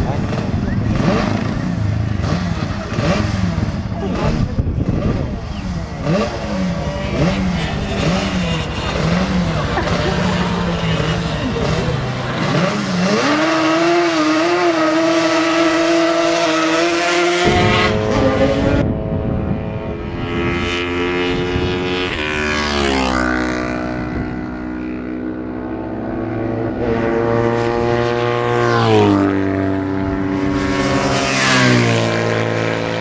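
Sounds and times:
motorcycle engine revving high: 0.0s - 33.0s
racing motorcycles passing: 0.0s - 33.0s.

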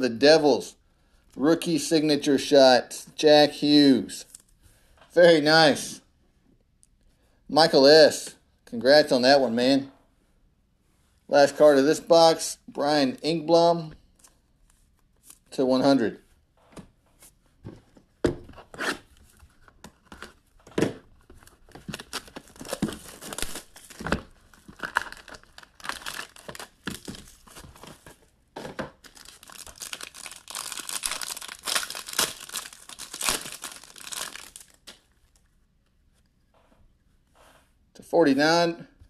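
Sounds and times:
packaging tearing and crinkling: 21.5s - 28.1s, 29.0s - 35.0s.

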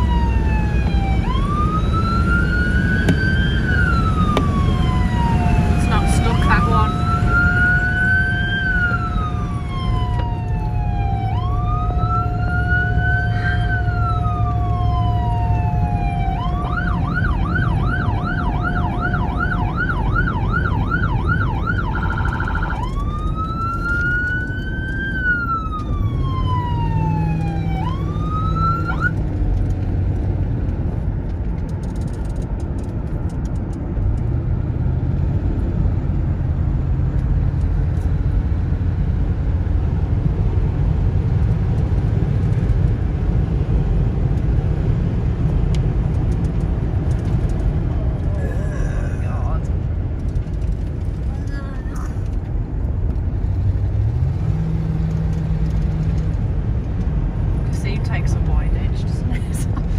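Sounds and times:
police siren wailing and yelping: 0.0s - 29.2s
car engine and road rumble: 0.0s - 59.9s.

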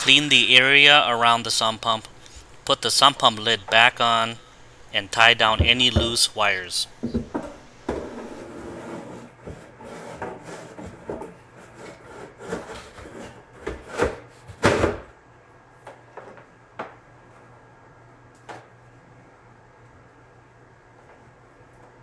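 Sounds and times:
plastic lid rubbing and scraping: 7.2s - 13.4s.

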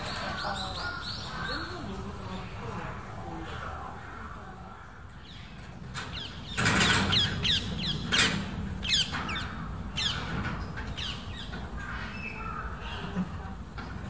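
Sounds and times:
birds squawking: 0.0s - 13.6s.

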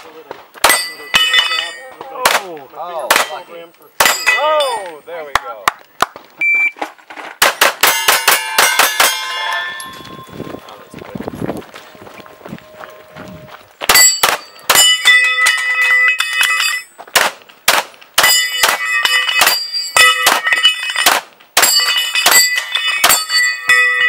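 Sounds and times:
steel plates ringing: 0.6s - 2.0s, 3.1s - 5.2s, 7.8s - 11.0s, 13.9s - 16.9s, 18.2s - 24.0s
rapid pistol shots: 7.4s - 9.0s, 17.2s - 18.8s.

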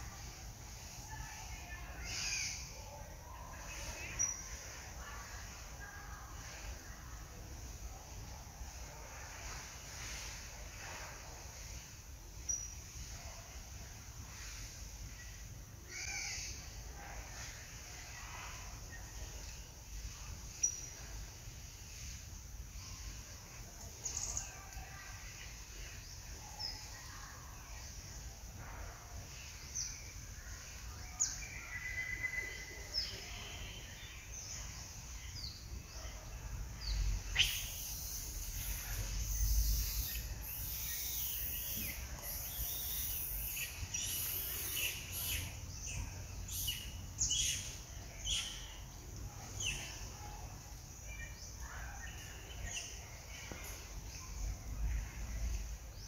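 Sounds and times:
birds chirping: 36.8s - 48.9s
shrill high hiss: 37.2s - 45.6s.

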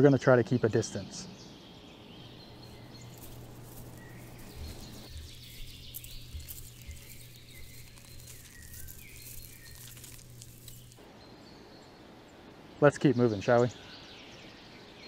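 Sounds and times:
birds chirping: 0.0s - 15.0s
rustling grass and leaves: 2.0s - 12.4s
steady low hum: 2.3s - 11.0s.

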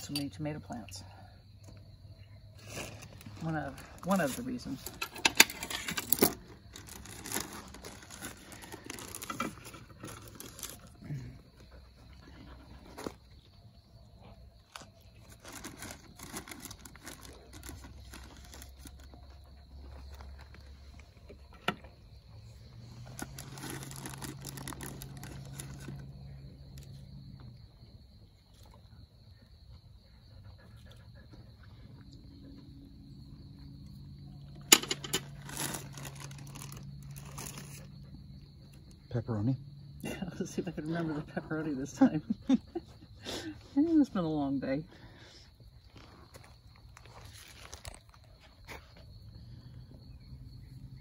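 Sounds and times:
high insect drone: 0.0s - 51.0s
rustling and scraping handling noise: 2.6s - 11.0s, 22.6s - 26.0s, 34.7s - 37.9s, 45.9s - 49.1s.

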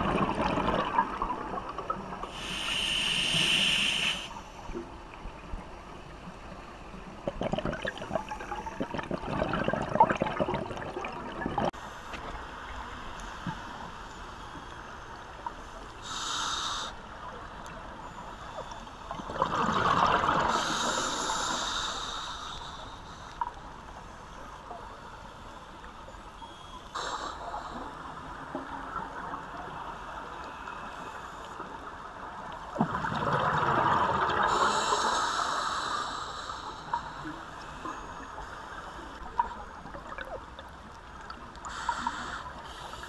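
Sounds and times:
steady underwater hiss: 0.8s - 8.9s, 11.7s - 19.2s, 19.8s - 32.7s, 34.2s - 43.0s
hissing regulator breaths: 2.3s - 4.6s, 34.5s - 37.3s, 41.7s - 43.0s
bubbly underwater exhalations: 7.2s - 11.7s.

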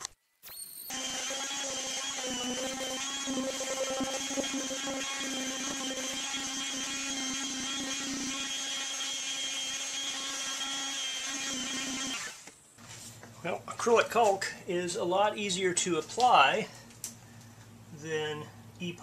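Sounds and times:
electric palm sander: 0.9s - 12.4s.

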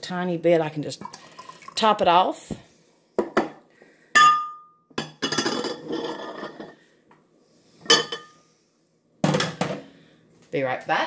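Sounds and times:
glass cup clinking on ceramic dish: 4.2s - 5.8s, 7.9s - 8.3s.

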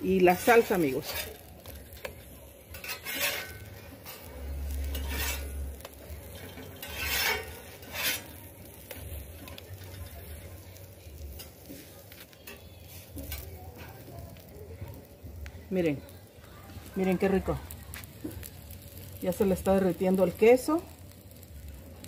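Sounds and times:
metal spatula scraping steel griddle: 0.1s - 14.1s.

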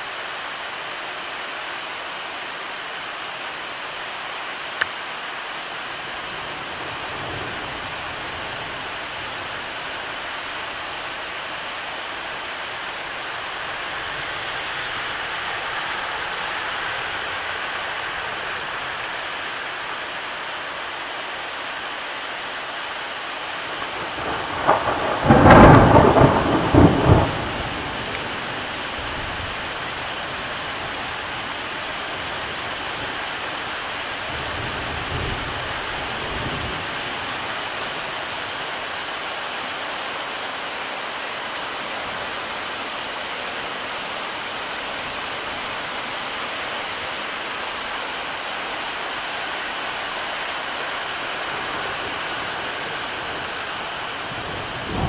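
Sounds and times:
heavy rain hissing: 0.0s - 55.0s
faint roll of thunder: 23.9s - 28.6s
loud thunderclap rumbling: 23.9s - 29.4s, 54.3s - 55.0s.

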